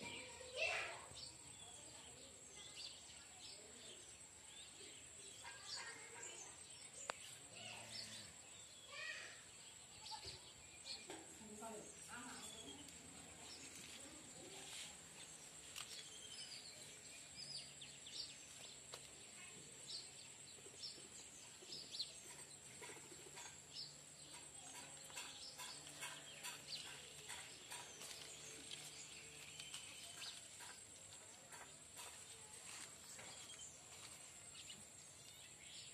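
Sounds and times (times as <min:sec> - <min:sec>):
bird chirps: 0:19.4 - 0:32.1.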